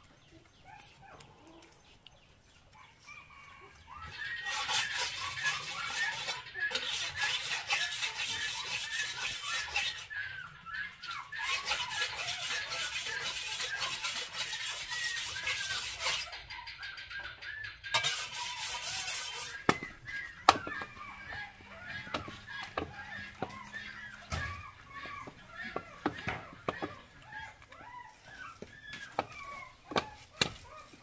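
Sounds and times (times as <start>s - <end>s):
knife scraping on sharpening stone: 4.4s - 10.1s, 11.4s - 16.3s, 17.9s - 19.8s
high bird-like chirps: 14.8s - 30.9s.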